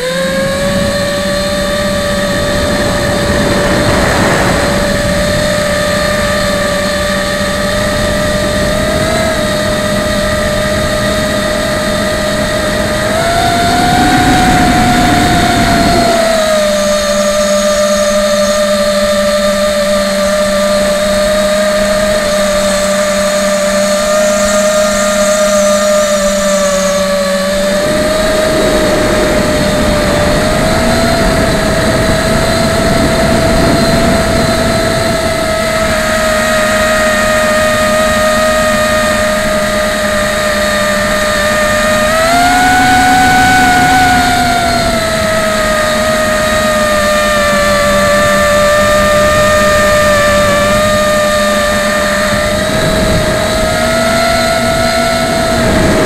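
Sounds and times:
drone motors whining: 0:00.0 - 0:56.0
low rushing noise: 0:00.3 - 0:07.8, 0:26.0 - 0:33.6.

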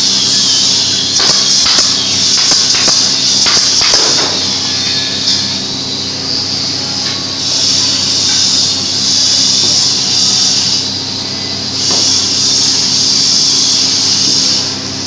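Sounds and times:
steady hiss and hum: 0:00.0 - 0:15.0
nail gun firing into wood: 0:01.2 - 0:04.5.

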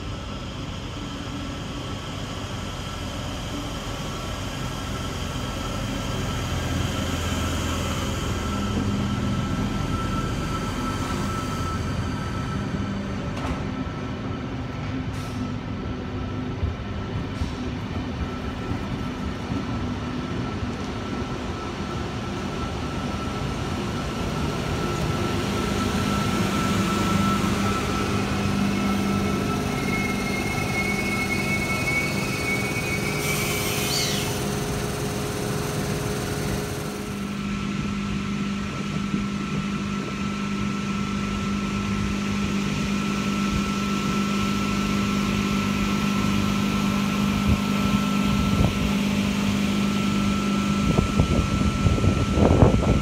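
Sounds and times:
electric train hum: 0:00.0 - 0:53.0
high rising squeal: 0:24.8 - 0:37.6.

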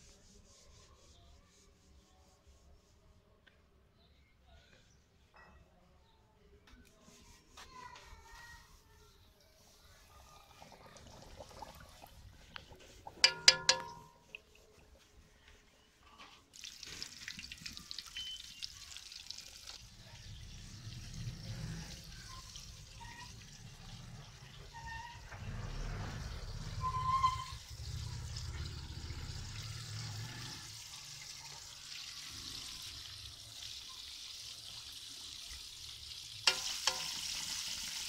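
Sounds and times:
chicken deep-frying in oil: 0:09.6 - 0:15.1, 0:16.1 - 0:38.0.

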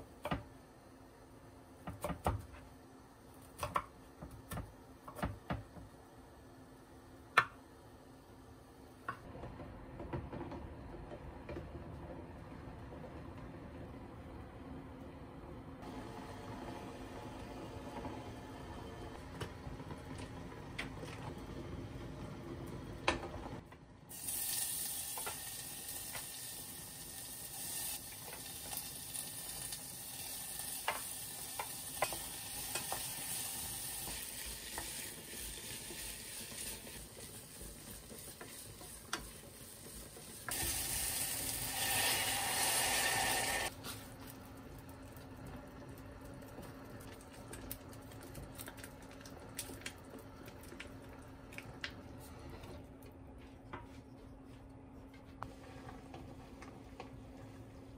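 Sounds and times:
food sizzling in a frying pan: 0:24.1 - 0:43.7.

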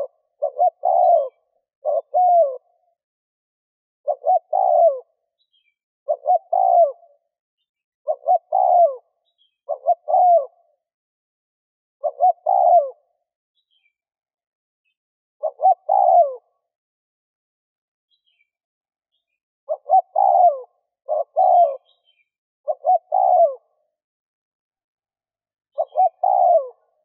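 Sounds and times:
dove cooing: 0:00.0 - 0:02.9, 0:04.0 - 0:05.2, 0:06.1 - 0:07.3, 0:08.1 - 0:10.8, 0:12.0 - 0:13.2, 0:15.4 - 0:16.5, 0:19.7 - 0:23.8, 0:25.7 - 0:27.0.

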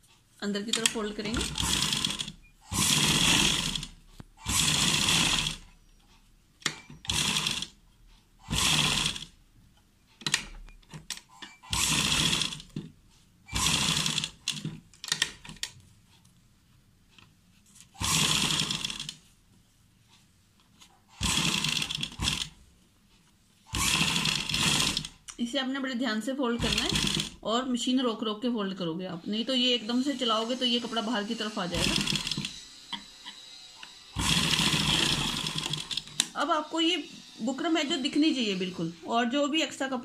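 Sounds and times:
sewing machine stitching: 0:00.6 - 0:09.4, 0:10.2 - 0:12.9, 0:13.5 - 0:15.8, 0:17.8 - 0:19.2, 0:21.0 - 0:22.6, 0:23.7 - 0:25.3, 0:26.6 - 0:27.5, 0:29.3 - 0:36.5.

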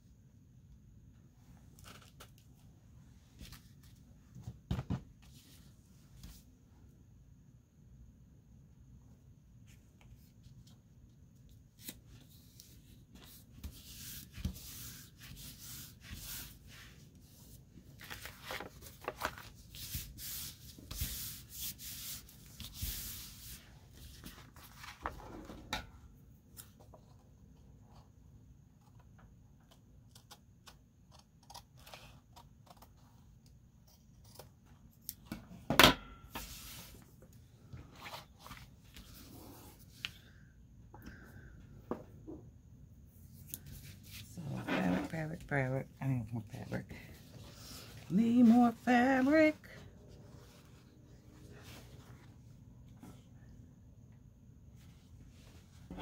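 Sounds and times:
paper rustling and sliding: 0:11.8 - 0:25.2, 0:37.8 - 0:40.2.

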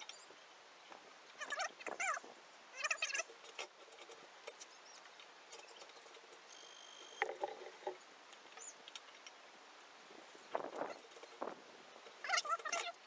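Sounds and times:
rope clicking and rustling: 0:03.2 - 0:06.5.

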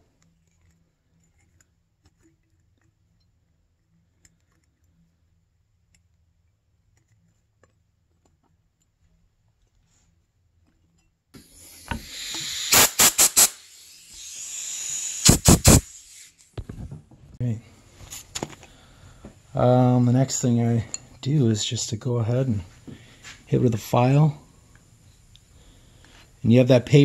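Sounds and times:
compressed air blow gun hissing: 0:11.4 - 0:16.5.

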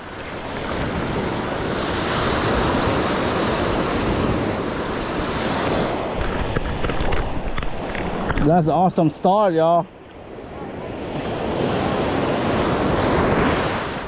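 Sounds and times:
wind rumbling on microphone: 0:00.0 - 0:09.2
surf waves breaking on sand: 0:00.0 - 0:14.0.

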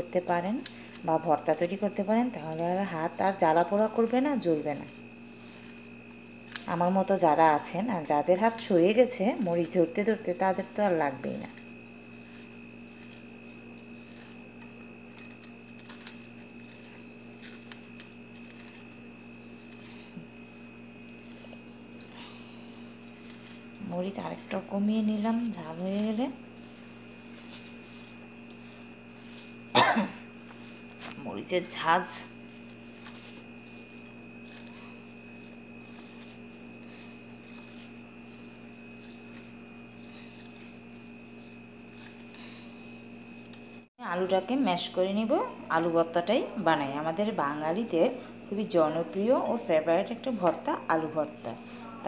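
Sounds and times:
dry chillies being crushed: 0:00.0 - 0:43.9
gloved hand squishing food: 0:00.0 - 0:43.9
steady background hum: 0:00.0 - 0:52.0.

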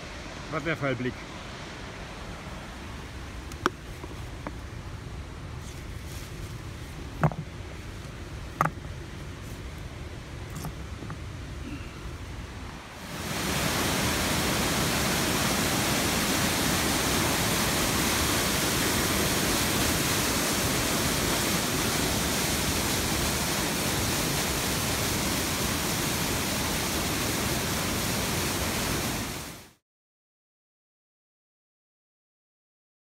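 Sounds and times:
waterfall rushing: 0:00.0 - 0:05.5, 0:10.1 - 0:29.8.

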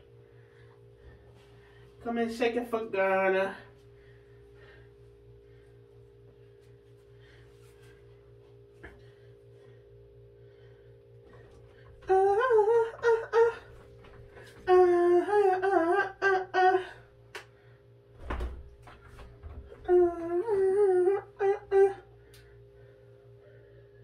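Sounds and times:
steady low hum: 0:00.0 - 0:24.0
woman humming a tune: 0:12.0 - 0:13.8, 0:14.4 - 0:17.1, 0:19.8 - 0:22.2.

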